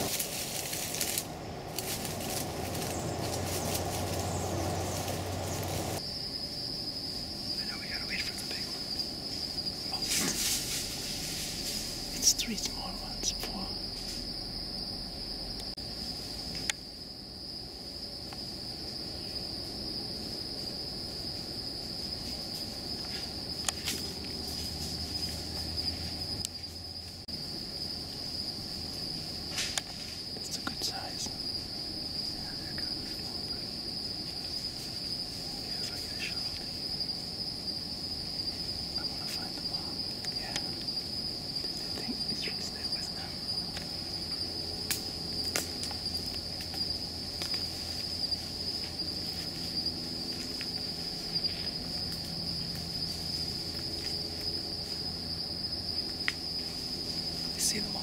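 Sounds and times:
high-pitched insect trill: 0.0s - 58.0s
faint snaps and rustles: 44.8s - 48.0s.

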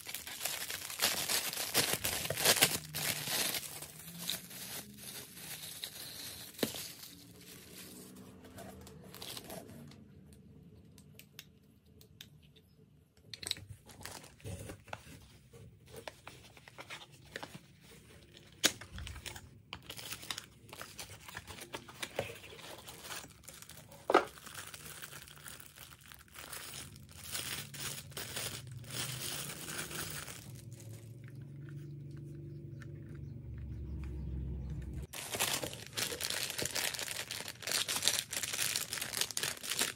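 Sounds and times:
plastic packaging crinkling: 0.0s - 9.9s, 15.9s - 32.0s, 35.0s - 39.9s.

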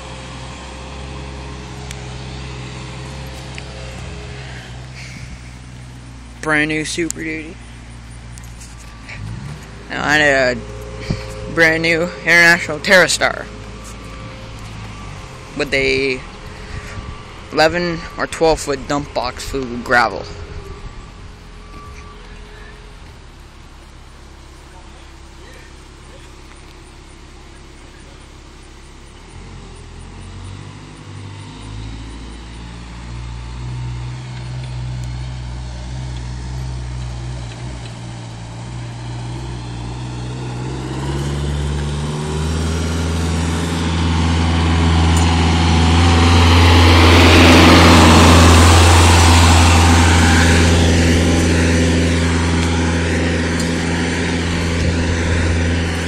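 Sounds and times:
forklift engine running: 0.0s - 56.0s.

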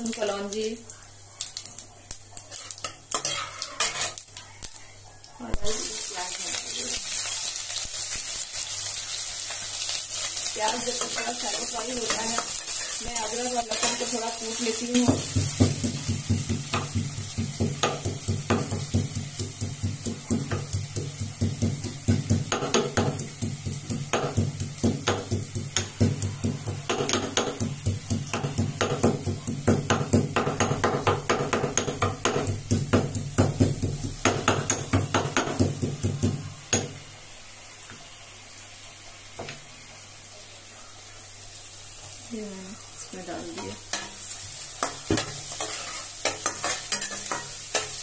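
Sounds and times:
pestle pounding in stone mortar: 23.9s - 36.4s.

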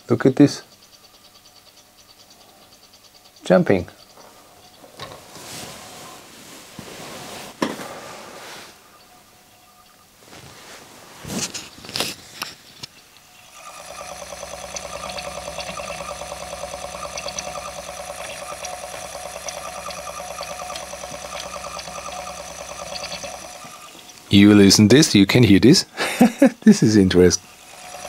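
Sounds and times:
cd player mechanical chatter: 13.2s - 28.0s.

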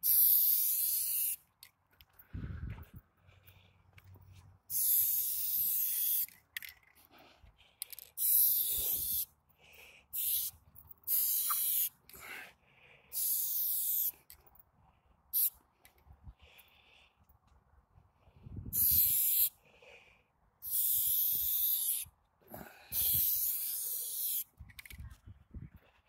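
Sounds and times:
spray paint can hissing: 0.0s - 1.4s, 4.7s - 6.4s, 8.0s - 9.3s, 10.1s - 12.0s, 13.1s - 14.2s, 15.3s - 15.6s, 18.7s - 19.6s, 20.6s - 22.1s, 22.9s - 24.9s.

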